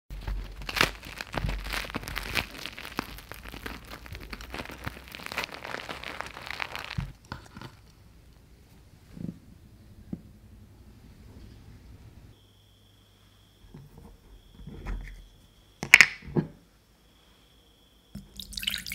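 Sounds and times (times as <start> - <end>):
bread tearing: 0.1 - 8.0
bun crust crackling: 0.1 - 8.1.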